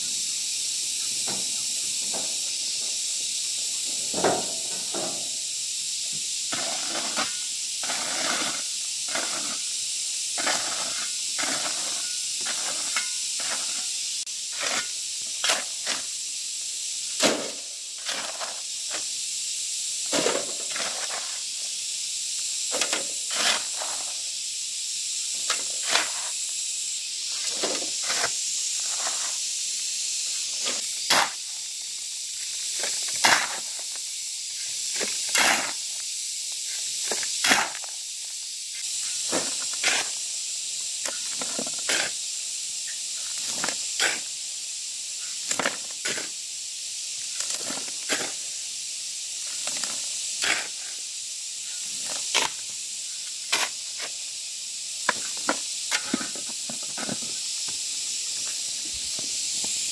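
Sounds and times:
steady high hiss: 0.0 - 59.9.

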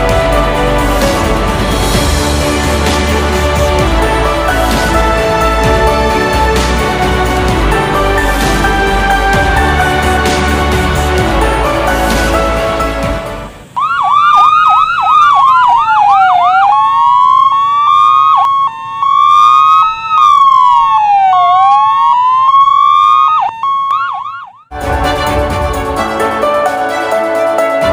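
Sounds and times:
music: 0.0 - 13.7, 24.7 - 27.9
ambulance siren: 13.6 - 24.7.

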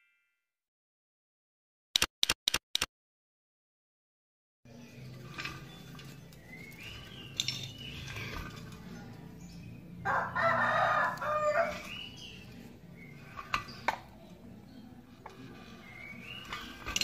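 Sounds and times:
sharp clicks: 2.0 - 2.9
rooster crowing: 10.0 - 12.0.

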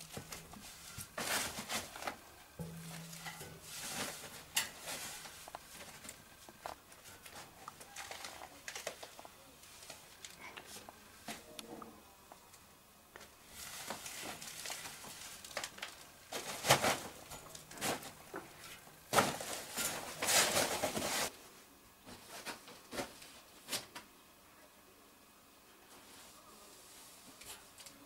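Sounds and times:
plastic sheet rustling and scraping: 0.0 - 10.2, 13.4 - 21.3.

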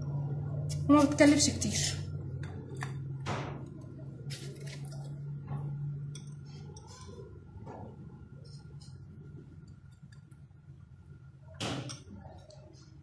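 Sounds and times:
steady low hum: 0.0 - 13.0
dishes clinking and knocking: 11.5 - 12.2.

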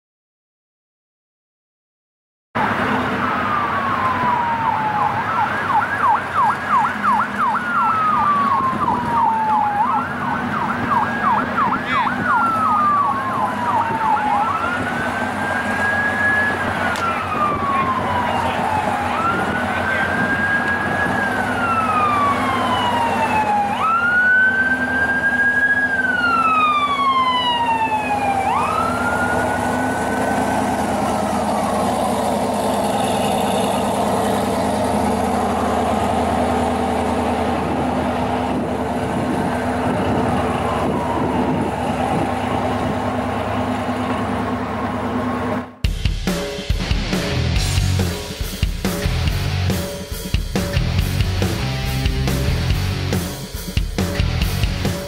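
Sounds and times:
siren wailing: 2.6 - 45.8
steady engine: 2.6 - 55.0.

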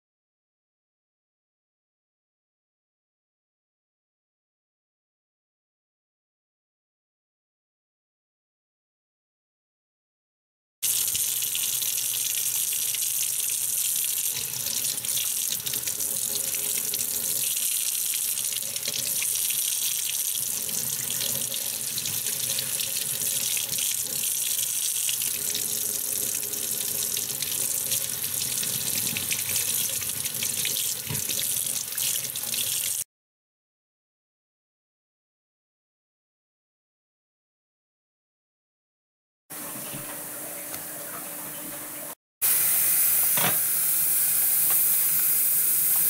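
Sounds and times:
tap water running into sink: 10.8 - 33.0, 39.6 - 42.2, 43.0 - 46.0.

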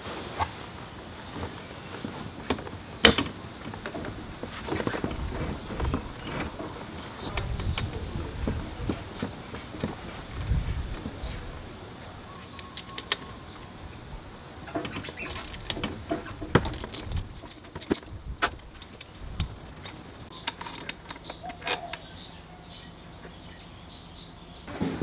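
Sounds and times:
hand tools clicking and clinking: 12.4 - 13.7, 14.7 - 22.2.

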